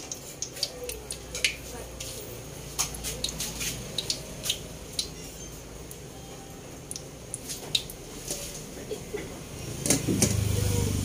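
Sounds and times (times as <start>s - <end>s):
hot oil popping and crackling: 0.0s - 6.1s, 6.7s - 9.2s.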